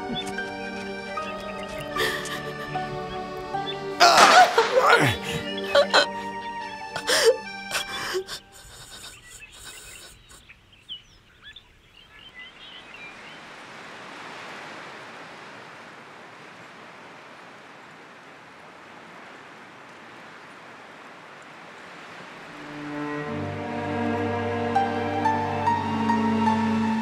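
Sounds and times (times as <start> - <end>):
music: 0.0 - 8.3, 22.6 - 27.0
faint bird chirps: 8.2 - 13.5.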